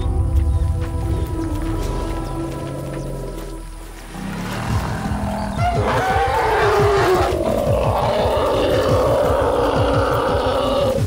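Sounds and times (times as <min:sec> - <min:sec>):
elephant calling: 0:04.1 - 0:11.0.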